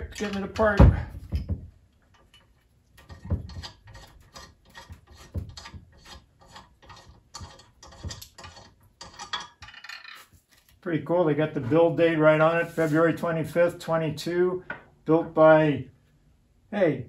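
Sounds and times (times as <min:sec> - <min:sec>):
metal stand parts clicking and knocking: 0:00.0 - 0:10.4.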